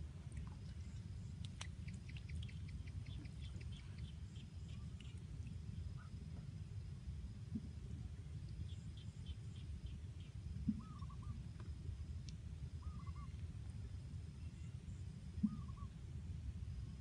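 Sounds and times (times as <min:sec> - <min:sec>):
bird calling: 0:10.7 - 0:11.4, 0:12.8 - 0:13.4, 0:15.4 - 0:15.9.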